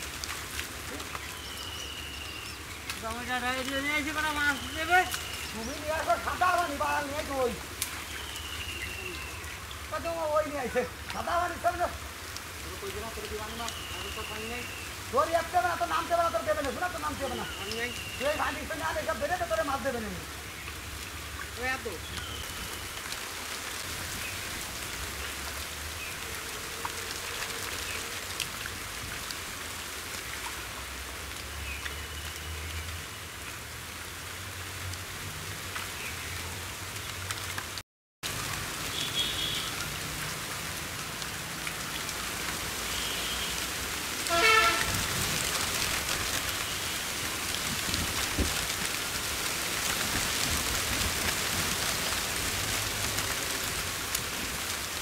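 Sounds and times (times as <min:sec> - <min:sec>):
muddy water splashing: 0:00.0 - 0:55.0.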